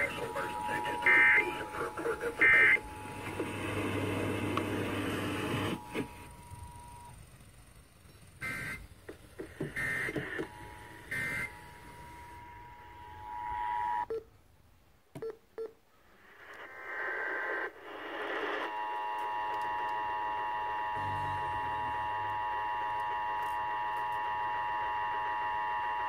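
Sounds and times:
digital data bursts: 0:00.0 - 0:03.3, 0:08.4 - 0:08.9, 0:09.7 - 0:13.2.

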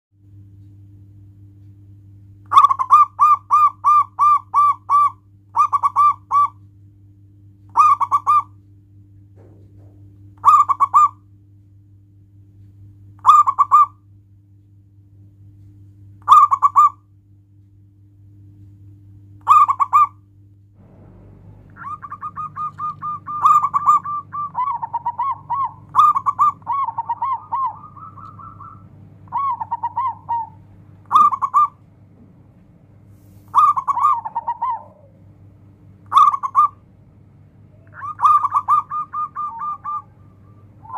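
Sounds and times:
dove cooing: 0:02.5 - 0:06.6, 0:07.7 - 0:08.6, 0:09.4 - 0:11.2, 0:13.2 - 0:14.0, 0:16.3 - 0:17.0, 0:19.4 - 0:20.2, 0:20.8 - 0:32.3, 0:33.5 - 0:35.3, 0:36.0 - 0:36.9, 0:37.6 - 0:40.9.

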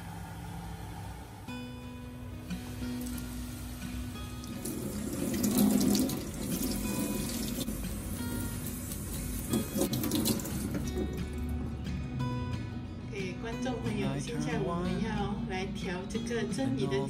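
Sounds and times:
tap water splashing in sink: 0:04.4 - 0:07.7, 0:08.6 - 0:11.4.

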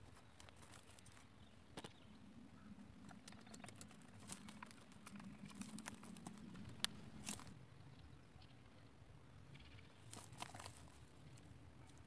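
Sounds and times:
hoe working garden soil: 0:00.0 - 0:02.0.

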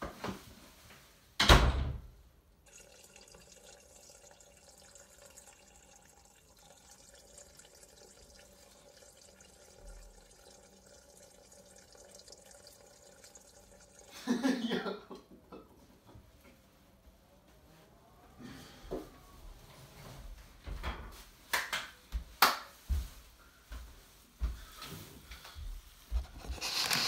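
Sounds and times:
trickle of liquid: 0:02.6 - 0:14.6, 0:26.1 - 0:27.0.

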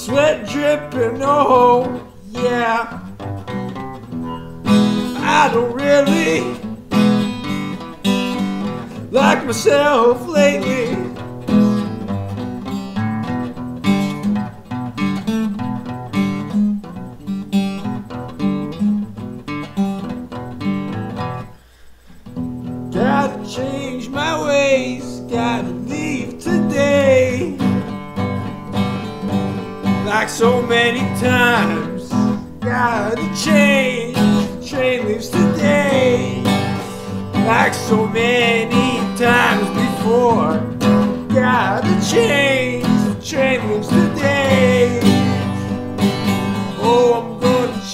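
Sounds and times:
man singing: 0:00.0 - 0:03.3, 0:05.0 - 0:06.8, 0:08.7 - 0:11.7, 0:22.9 - 0:28.0, 0:29.8 - 0:47.9
acoustic guitar: 0:00.0 - 0:47.9.

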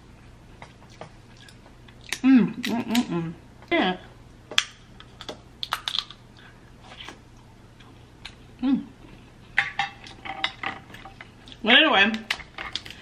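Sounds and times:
crab shells cracking: 0:04.6 - 0:06.2.

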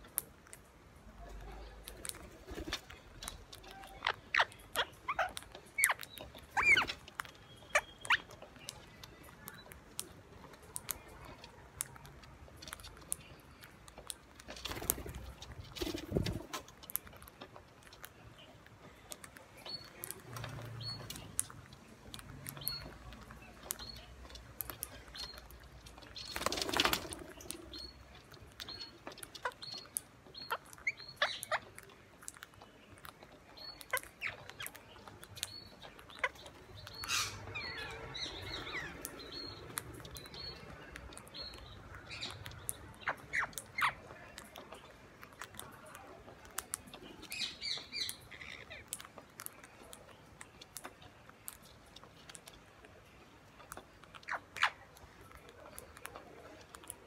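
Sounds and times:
parakeet chirps and calls: 0:01.2 - 0:17.1, 0:17.8 - 0:57.0
faint high chirp: 0:03.6 - 0:09.8.

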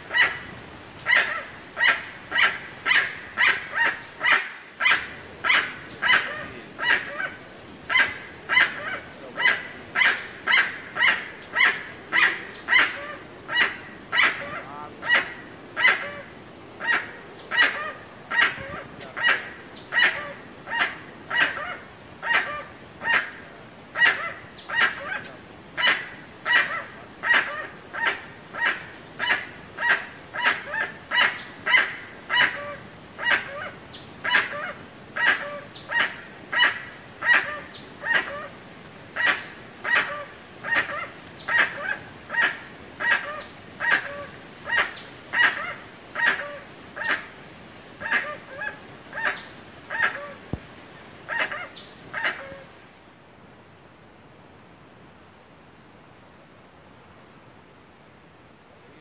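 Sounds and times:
bird calling short calls: 0:01.0 - 0:23.4, 0:24.0 - 0:47.4.

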